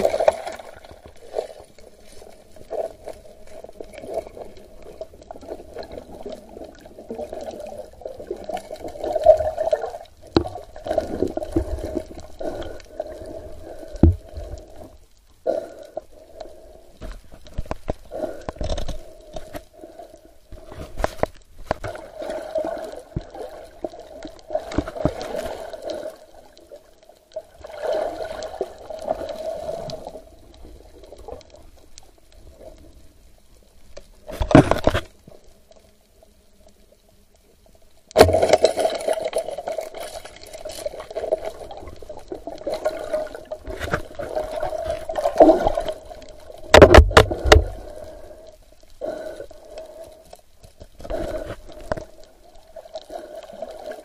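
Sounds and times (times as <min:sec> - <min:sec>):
muffled underwater water noise: 0:00.0 - 0:54.0.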